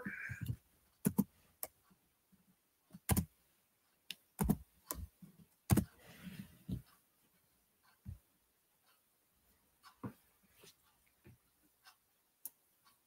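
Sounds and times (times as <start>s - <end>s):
computer keyboard typing: 0.4s - 1.7s, 3.0s - 3.3s, 4.4s - 5.0s, 5.7s - 5.9s.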